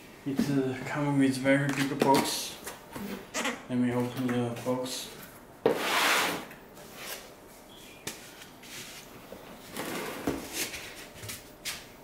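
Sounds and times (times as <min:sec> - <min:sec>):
cardboard scraping: 0:09.6 - 0:10.9.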